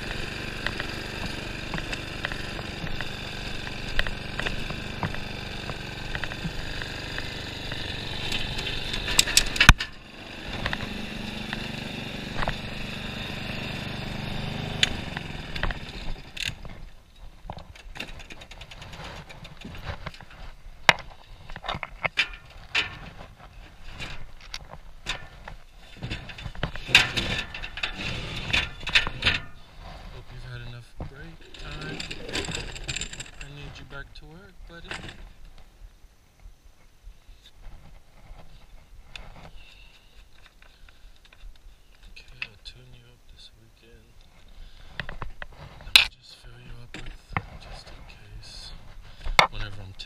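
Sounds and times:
scattered clicks and knocks: 0:00.0 - 0:11.7, 0:17.5 - 0:23.2, 0:24.0 - 0:29.6, 0:31.0 - 0:33.8
small petrol engine running: 0:00.0 - 0:17.0, 0:17.6 - 0:20.2, 0:26.0 - 0:29.9, 0:31.2 - 0:33.9.

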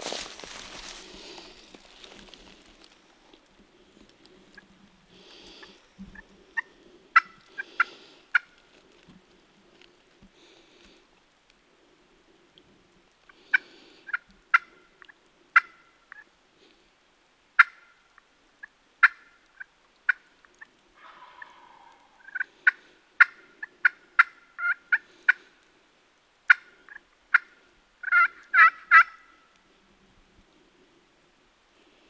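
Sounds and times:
turkeys clucking: 0:04.0 - 0:09.2, 0:13.3 - 0:16.3, 0:18.6 - 0:25.5, 0:26.5 - 0:29.4
turkey gobble: 0:05.6 - 0:08.6, 0:13.5 - 0:16.3, 0:17.6 - 0:17.9, 0:18.6 - 0:25.5, 0:26.5 - 0:29.5.

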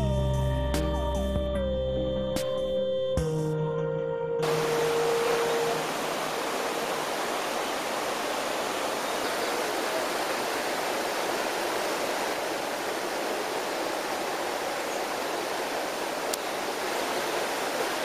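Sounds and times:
background music: 0:00.0 - 0:05.9
flowing falling water: 0:04.4 - 0:18.0.

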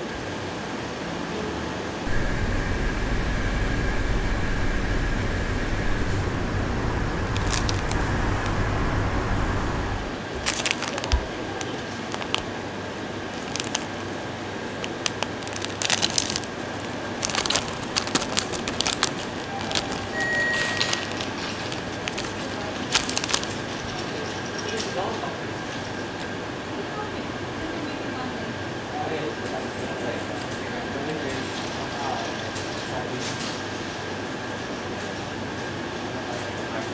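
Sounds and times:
low hum: 0:02.1 - 0:10.3
plastic snack bag crackling: 0:07.2 - 0:08.7, 0:10.0 - 0:12.6, 0:13.2 - 0:24.2.

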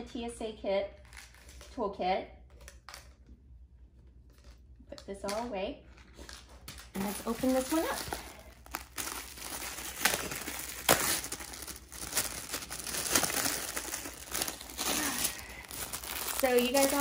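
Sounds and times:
plastic wrapping crinkling: 0:05.9 - 0:17.0.

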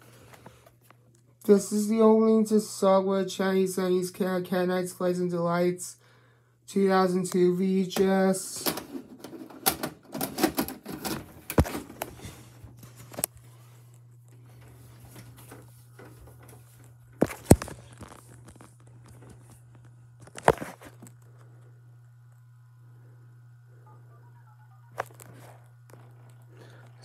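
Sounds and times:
low buzz from a tv: 0:00.0 - 0:27.0
cassette clicking into a vcr: 0:08.0 - 0:12.1.

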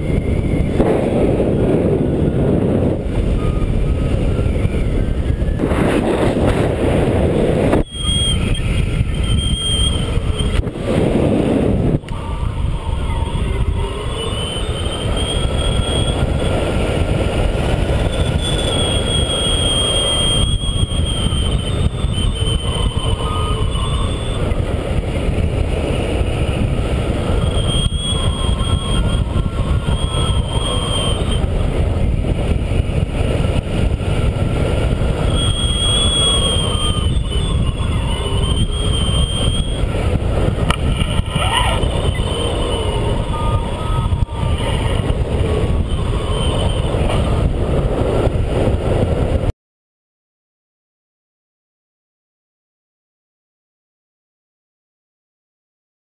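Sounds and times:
wind rushing over microphone: 0:00.0 - 0:49.5
thin wavering high tone: 0:12.0 - 0:16.7, 0:18.0 - 0:24.6, 0:27.2 - 0:31.5, 0:35.3 - 0:39.9, 0:41.1 - 0:47.1.

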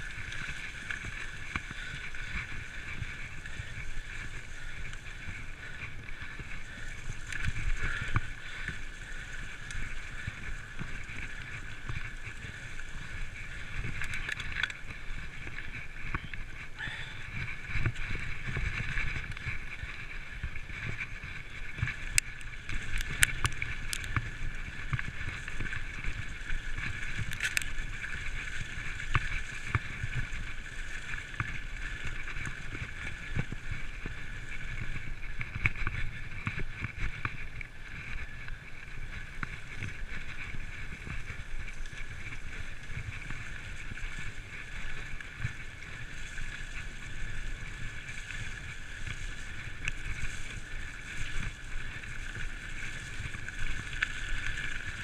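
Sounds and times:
bike rattling over bumps: 0:00.0 - 0:55.0
bike tyres rumbling on dirt: 0:00.0 - 0:55.0.

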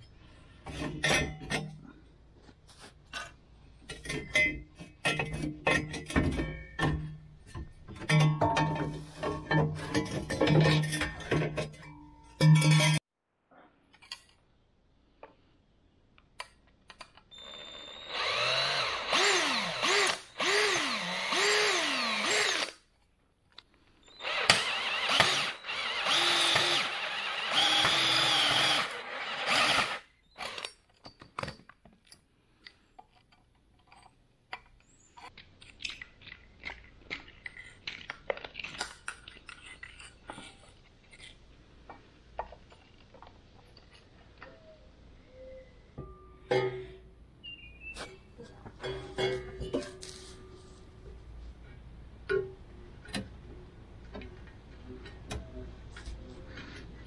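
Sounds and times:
power tool working on metal pipe: 0:17.4 - 0:22.8, 0:24.2 - 0:30.7.

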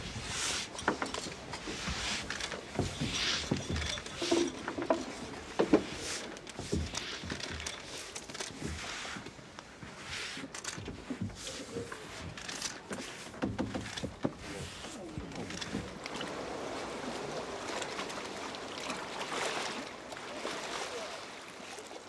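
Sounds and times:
sand being swept and scraped: 0:00.0 - 0:00.8
small knocks: 0:00.8 - 0:08.8, 0:12.3 - 0:14.5.

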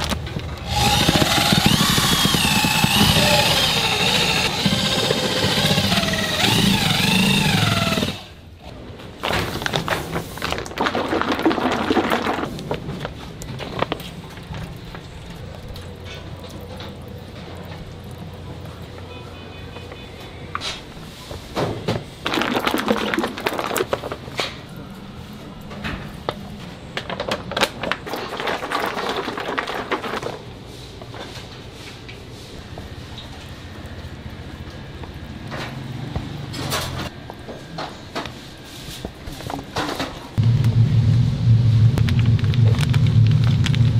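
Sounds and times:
electric drill mixer whirring: 0:00.6 - 0:08.3
low kitchen hum: 0:08.3 - 0:22.2, 0:23.0 - 0:43.9
plastic bags crinkling and clicking: 0:09.2 - 0:18.0, 0:26.3 - 0:30.5.

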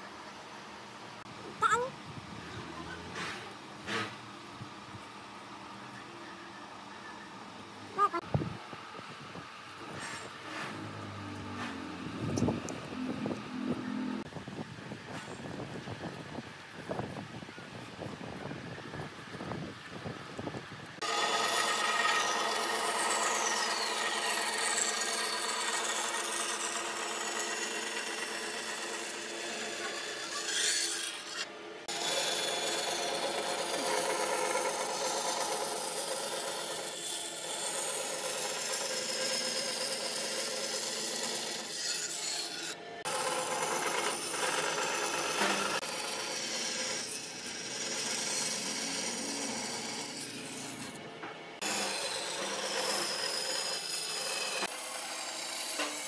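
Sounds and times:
band saw cutting wood: 0:02.5 - 0:04.3, 0:09.8 - 0:14.3, 0:21.0 - 0:56.0.

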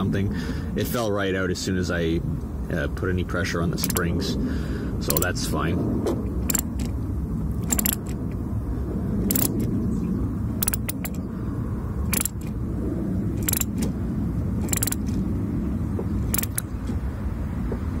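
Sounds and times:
ratchet wrench clicking: 0:03.8 - 0:04.1, 0:05.1 - 0:05.3, 0:06.4 - 0:07.0, 0:07.6 - 0:08.2, 0:09.3 - 0:09.7, 0:10.6 - 0:11.2, 0:12.1 - 0:12.6, 0:13.4 - 0:13.9, 0:14.6 - 0:15.1, 0:16.3 - 0:16.7.

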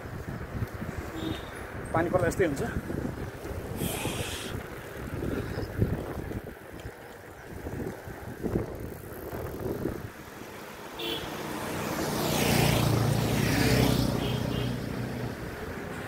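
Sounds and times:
wind and road rumble from bicycle: 0:00.0 - 0:16.0
vehicle driving past: 0:11.2 - 0:15.5.

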